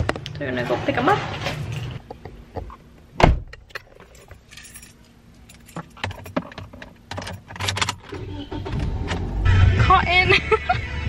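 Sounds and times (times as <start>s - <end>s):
keys jangling and clinking: 3.5s - 8.2s.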